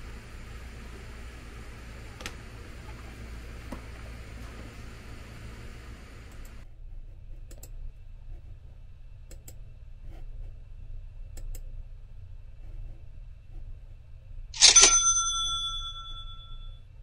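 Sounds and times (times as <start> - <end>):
low steady hum: 0.0 - 17.0
computer mouse clicking: 7.4 - 7.8, 9.2 - 9.6, 11.3 - 11.7.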